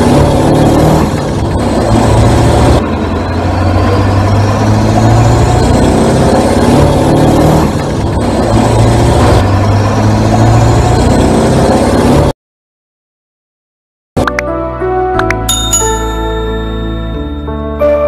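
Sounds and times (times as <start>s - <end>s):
vehicle engine revving: 0.0s - 12.3s.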